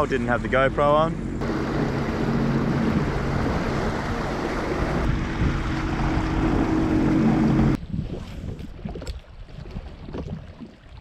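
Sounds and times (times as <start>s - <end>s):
jet ski engine: 0.0s - 7.8s
water rushing and spraying: 0.1s - 7.8s.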